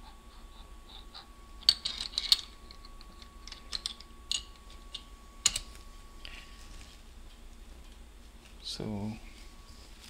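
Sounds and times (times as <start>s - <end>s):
metal parts clicking and clattering: 1.6s - 5.7s.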